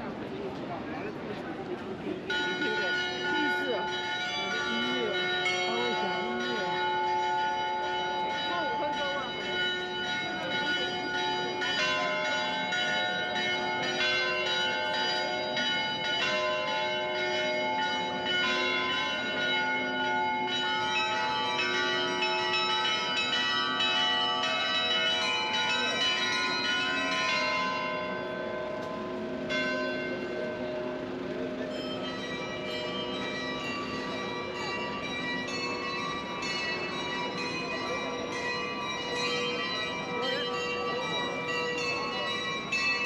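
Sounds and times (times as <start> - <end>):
clock bells playing a tune: 2.2 - 43.0.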